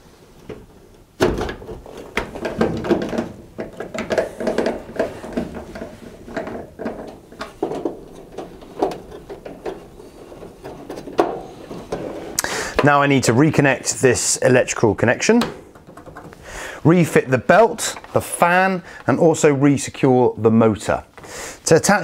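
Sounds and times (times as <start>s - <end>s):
metal knocks and scrapes: 1.3s - 12.9s, 15.4s - 16.4s.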